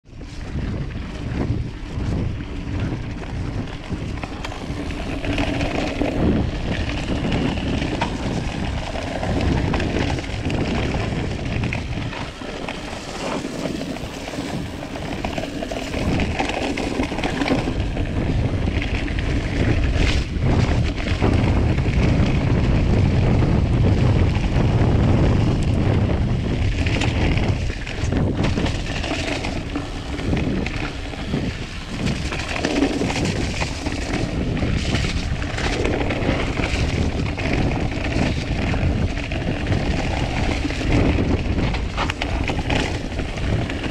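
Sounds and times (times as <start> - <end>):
bike knocking and rattling: 0.0 - 43.9
bike tyres rolling over dirt: 0.0 - 43.9
wind on microphone: 0.0 - 43.9.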